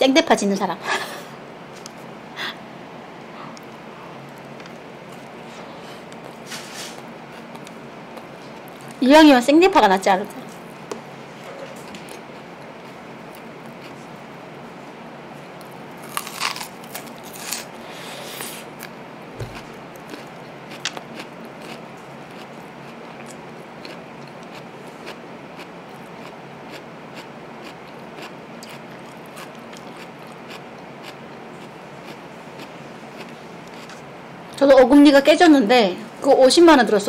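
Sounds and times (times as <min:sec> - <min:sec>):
crunching bites into raw onion: 0:16.0 - 0:17.7.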